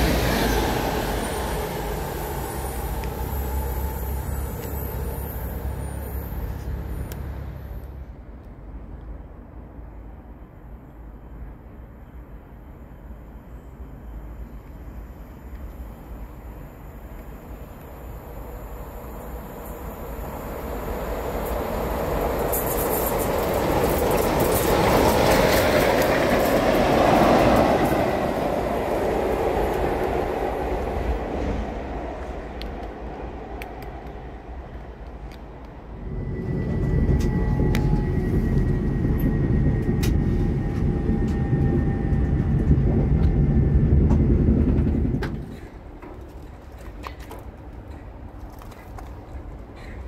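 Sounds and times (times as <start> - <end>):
steam train passing: 0.0 - 46.6
train low rumble: 0.0 - 50.0
faint high whine: 35.6 - 45.2.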